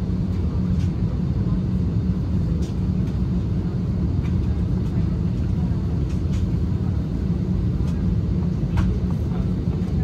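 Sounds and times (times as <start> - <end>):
aircraft cabin rumble: 0.0 - 10.0.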